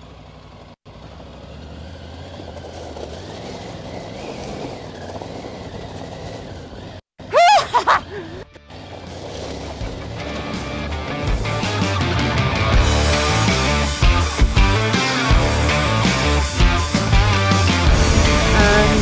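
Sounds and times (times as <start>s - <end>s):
motorcycle engine running: 0.0s - 7.1s, 8.3s - 19.0s
tyres crunching over gravel: 0.2s - 7.0s, 8.3s - 13.1s.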